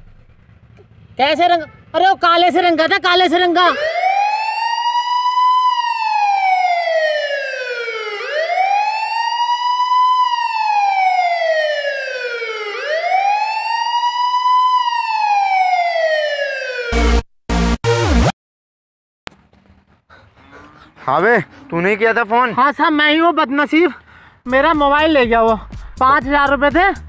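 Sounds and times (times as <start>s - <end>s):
police siren wailing: 3.0s - 17.2s.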